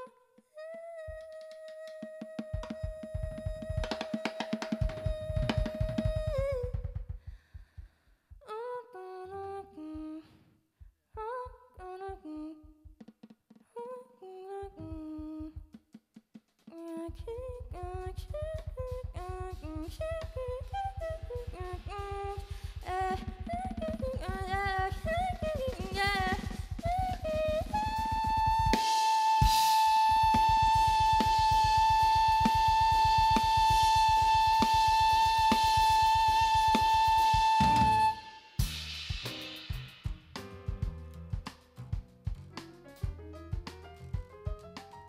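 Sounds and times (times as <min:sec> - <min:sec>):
woman singing: 0:00.0 - 0:07.0, 0:08.4 - 0:10.4, 0:11.1 - 0:12.8, 0:13.7 - 0:15.7, 0:16.7 - 0:38.2
drum kit: 0:02.2 - 0:08.0, 0:14.8 - 0:45.0.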